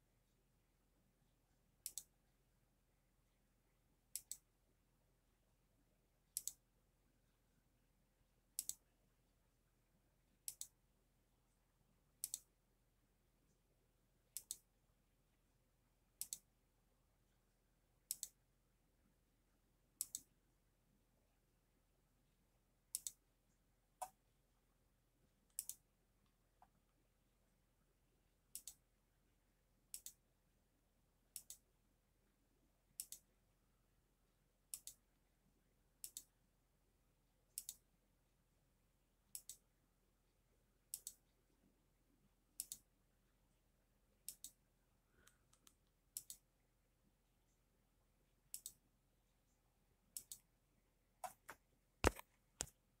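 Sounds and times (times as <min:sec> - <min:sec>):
mouse button clicking: 0:01.8 - 0:02.1.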